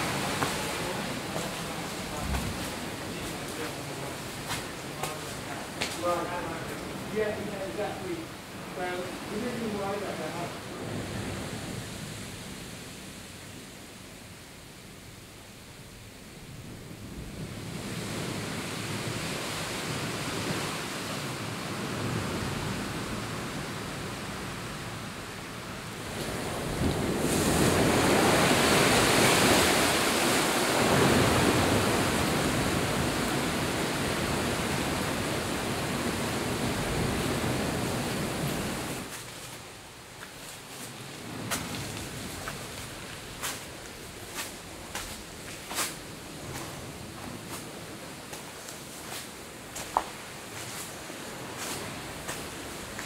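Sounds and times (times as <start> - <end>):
surf breaking on rocks: 0.0 - 8.2, 26.0 - 39.7
wind: 0.0 - 53.0.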